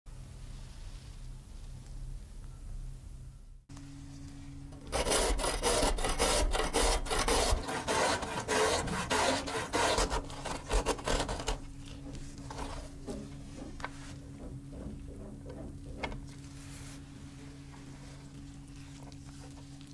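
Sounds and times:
grater rasping: 4.8s - 11.8s.

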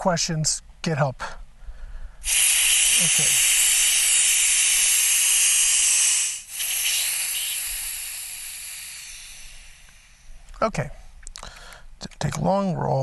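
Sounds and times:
high-pressure air hissing: 2.2s - 10.4s.

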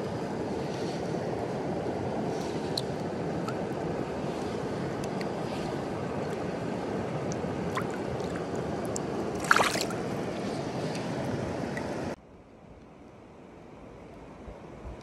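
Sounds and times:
stream water rushing: 0.0s - 12.2s
fish splashing: 7.3s - 11.2s.

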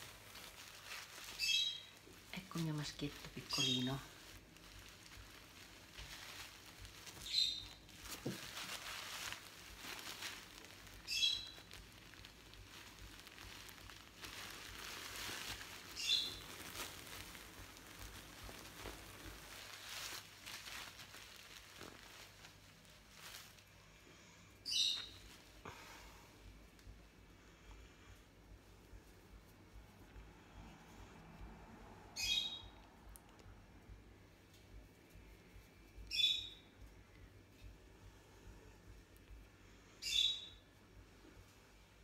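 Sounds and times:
cloth rustling: 0.0s - 26.2s
doll being handled: 0.0s - 27.0s.

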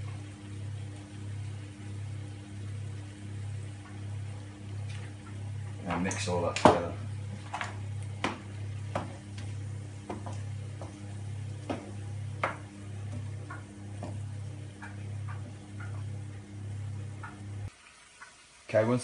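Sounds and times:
low steady hum: 0.0s - 17.7s.

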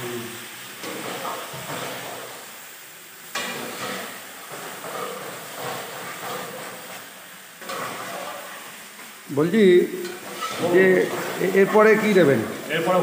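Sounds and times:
meat and potatoes sizzling in oil: 0.0s - 13.0s
metal spatula scraping pan: 3.3s - 7.0s, 7.6s - 8.6s, 10.0s - 12.7s.

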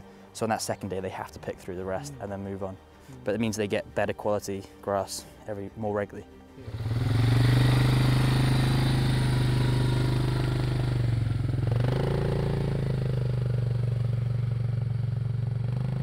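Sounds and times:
quad bike engine running: 6.6s - 16.0s.

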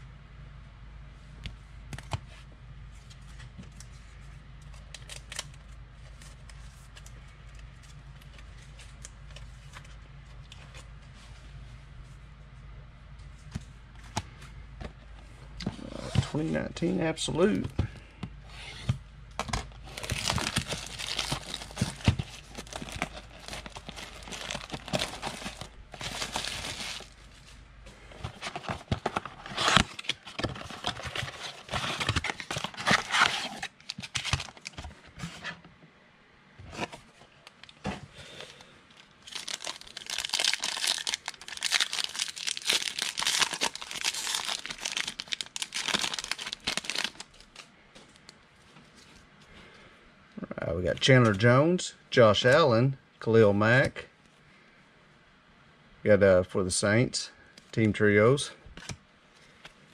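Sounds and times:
packaging crinkling and tearing: 4.8s - 9.8s, 19.4s - 27.3s, 28.2s - 34.9s, 38.4s - 48.3s.

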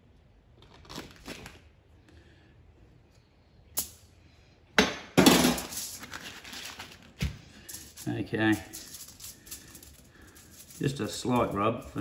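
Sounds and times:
aluminium foil crinkling: 0.6s - 1.7s, 5.8s - 12.0s.

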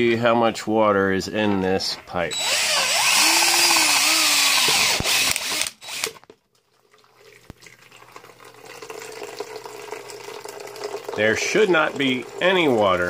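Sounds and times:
power drill boring into pipe: 2.3s - 6.3s
water running into plastic bucket: 4.4s - 13.0s.

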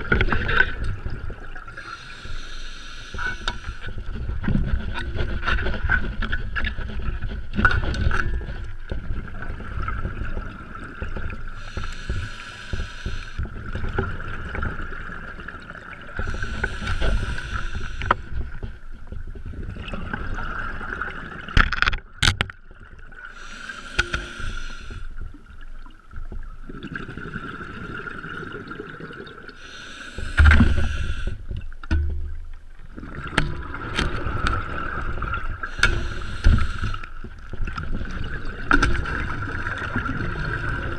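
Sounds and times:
diver inhaling: 1.8s - 3.9s, 11.6s - 13.4s, 16.2s - 18.3s, 23.3s - 25.2s, 29.6s - 31.5s, 35.7s - 37.2s.

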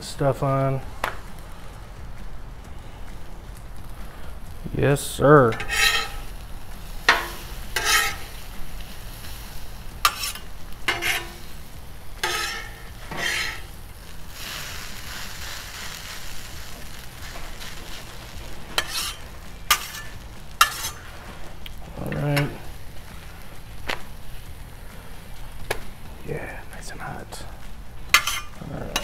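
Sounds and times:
food sizzling on hot plate: 0.4s - 29.0s
spatulas scraping griddle: 5.1s - 23.6s, 28.0s - 29.0s.

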